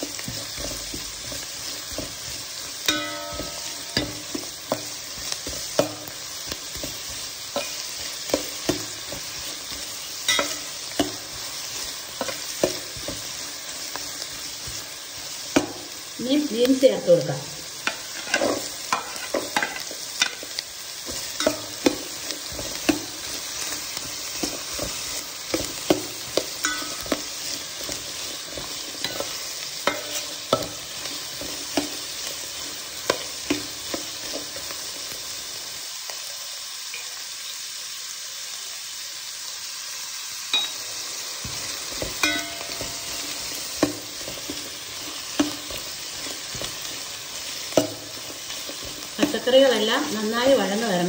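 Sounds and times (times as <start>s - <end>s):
vegetables sizzling in a pan: 0.0s - 51.0s
utensil scraping a pan: 17.8s - 20.4s.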